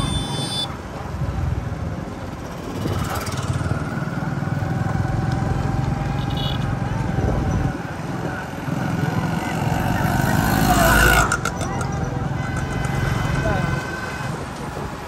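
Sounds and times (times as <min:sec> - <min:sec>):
wind rumble: 0:01.2 - 0:10.0.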